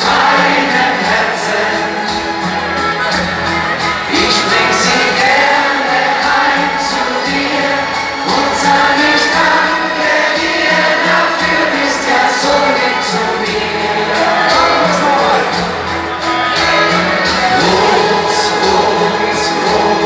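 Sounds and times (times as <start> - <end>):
man singing into a microphone: 0.0 - 2.4, 4.0 - 15.8, 17.3 - 20.0
band playing: 0.0 - 20.0.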